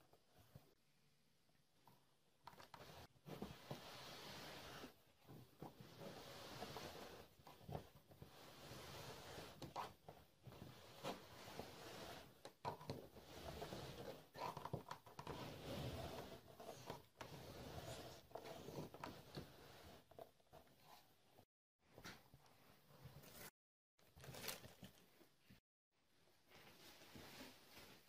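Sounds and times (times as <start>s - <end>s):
carpet and fabric rustling: 26.3s - 28.0s.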